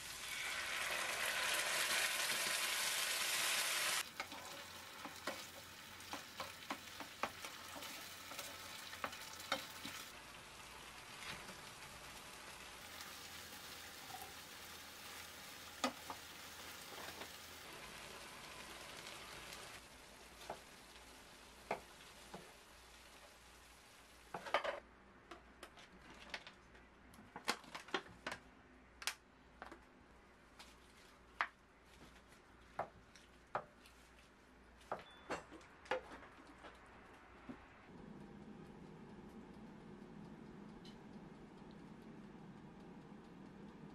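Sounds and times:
sauce sizzling in a frying pan: 0:00.0 - 0:24.4
wooden spoon knocking and scraping pan: 0:04.2 - 0:10.0.

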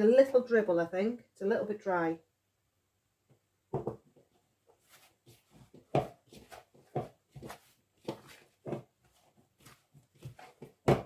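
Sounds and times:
pastry dough squishing in bowl: 0:04.9 - 0:11.0.

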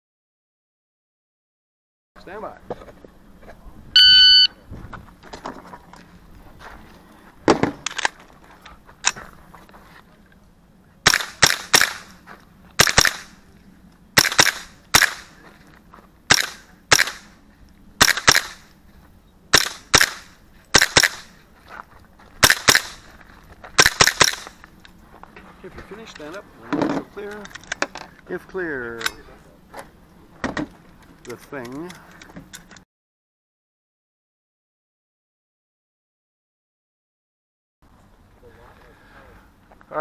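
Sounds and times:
rifle gunshots: 0:11.0 - 0:12.2, 0:12.8 - 0:13.4, 0:14.2 - 0:15.4, 0:16.3 - 0:17.4, 0:18.0 - 0:18.7, 0:19.5 - 0:21.3, 0:22.4 - 0:23.0, 0:23.8 - 0:24.5.

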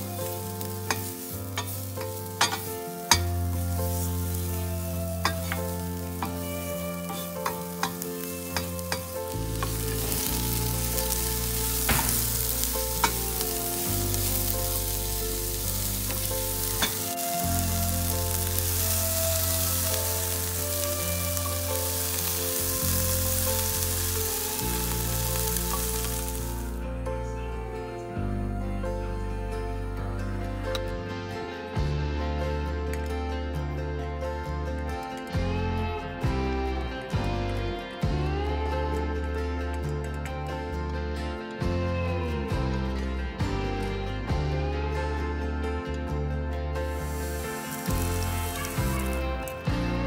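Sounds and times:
vegetables sizzling in frying pan: 0:00.0 - 0:26.8, 0:46.9 - 0:49.9
soft background music: 0:00.0 - 0:50.0.

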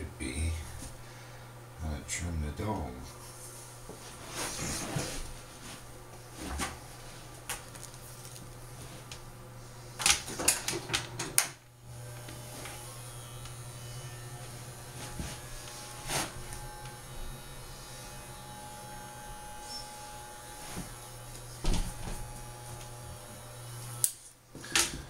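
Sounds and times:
electric clippers humming: 0:07.4 - 0:25.0.

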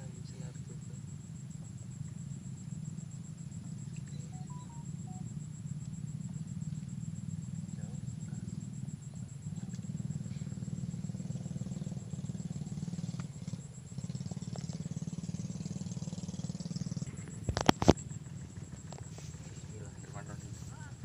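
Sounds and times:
engine drone: 0:00.0 - 0:21.0
faint high-pitched tone: 0:04.1 - 0:05.3.

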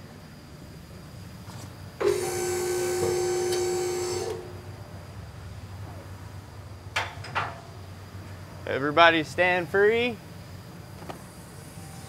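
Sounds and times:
hydraulic pump motor whining: 0:02.0 - 0:04.8, 0:11.0 - 0:12.0.

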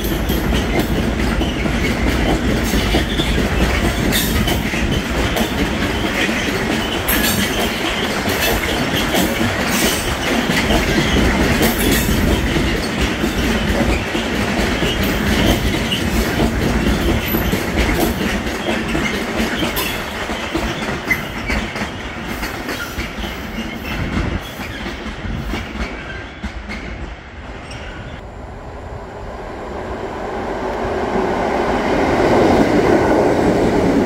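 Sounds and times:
freight train passing: 0:00.0 - 0:34.0.

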